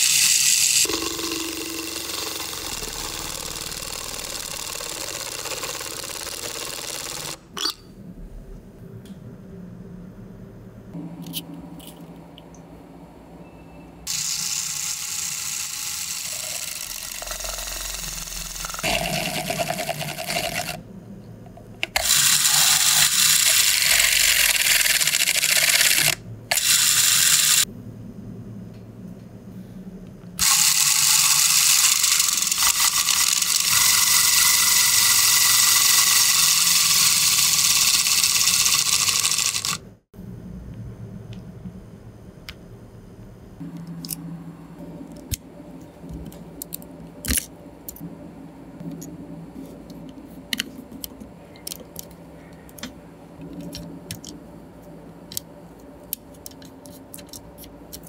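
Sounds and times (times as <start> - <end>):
drill bit grinding through cardboard: 0.0 - 7.4, 14.1 - 20.8, 21.9 - 27.6, 30.4 - 39.8
small electric motor spinning gears: 0.0 - 7.4, 14.1 - 20.8, 21.9 - 27.7, 30.4 - 39.8.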